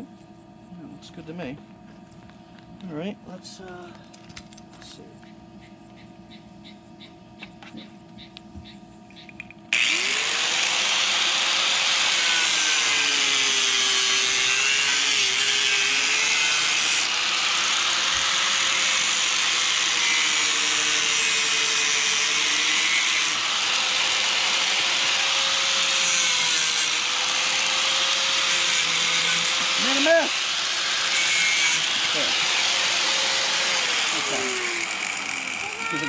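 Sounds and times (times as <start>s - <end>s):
angle grinder cutting pipe: 9.7s - 36.0s.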